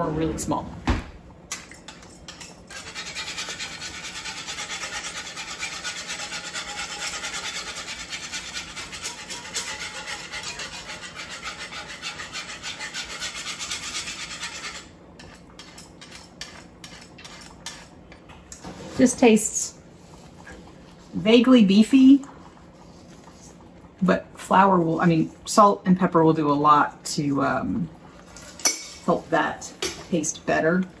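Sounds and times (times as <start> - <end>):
wire whisk scraping a pan: 1.6 - 18.2.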